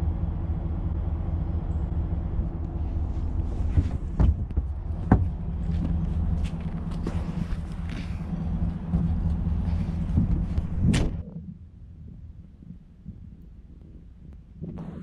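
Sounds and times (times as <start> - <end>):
vehicle engine idling: 0.0 - 11.3.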